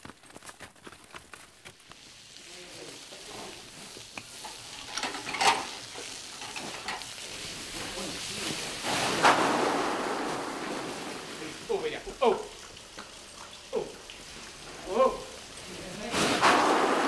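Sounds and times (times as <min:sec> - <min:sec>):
sacks rustling: 0:00.0 - 0:12.2, 0:15.6 - 0:17.0.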